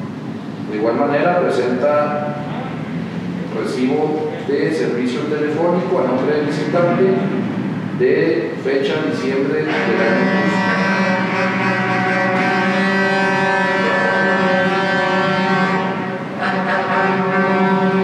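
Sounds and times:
loud drone of held tones: 5.6s - 18.0s.

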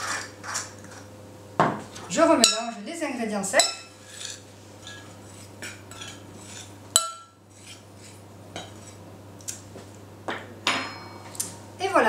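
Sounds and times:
spoon scraping in glass bowl: 4.0s - 6.7s.

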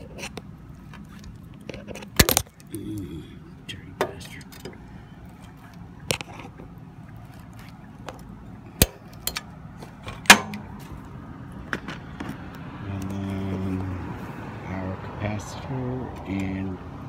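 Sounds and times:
low steady hum: 0.0s - 17.0s
metallic clicks and knocks of tools: 8.8s - 9.5s.

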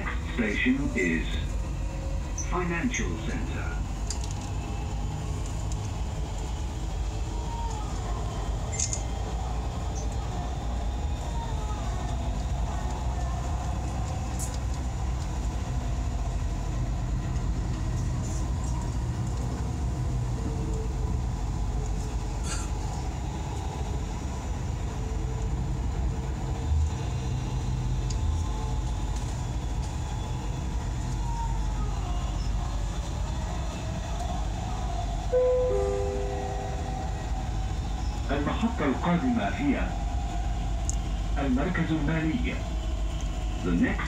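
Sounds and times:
train wheels rumbling on rail: 0.0s - 44.0s
faint steady whine: 35.2s - 39.4s.

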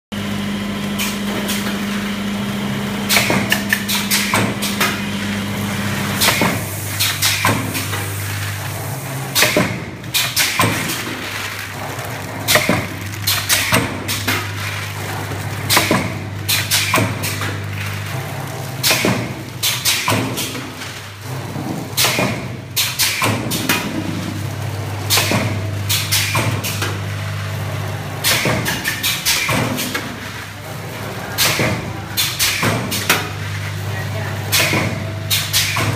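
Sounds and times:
machine low hum: 0.2s - 22.8s.

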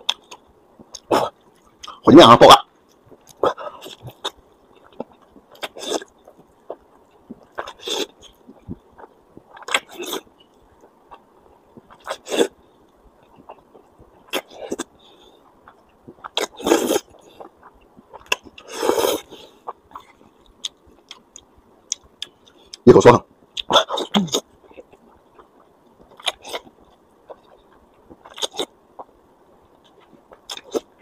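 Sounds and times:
person slurping noodles: 16.4s - 17.1s.

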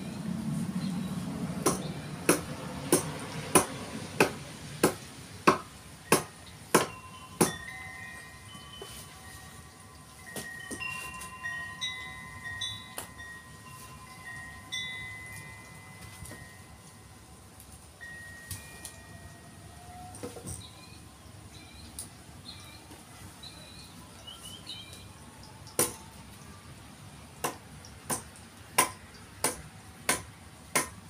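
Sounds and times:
sharp ringing knocks: 1.6s - 9.0s
bell-like tones: 6.4s - 25.6s.

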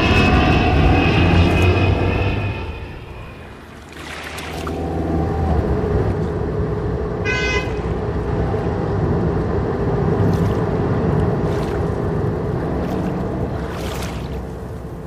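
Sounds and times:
car engine rumble: 0.0s - 15.0s
car horn honk: 7.2s - 8.0s.

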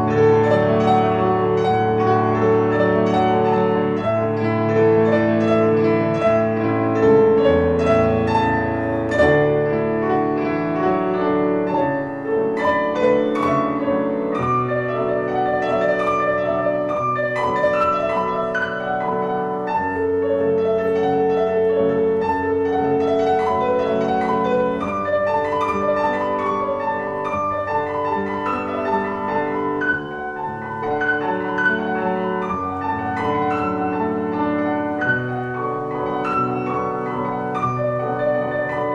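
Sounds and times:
piano music: 0.0s - 38.9s.

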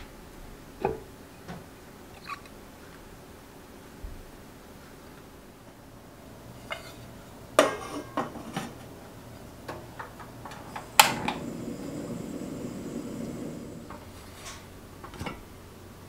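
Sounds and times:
gas flame rushing: 10.4s - 15.4s
stove igniter click: 10.5s - 14.1s.

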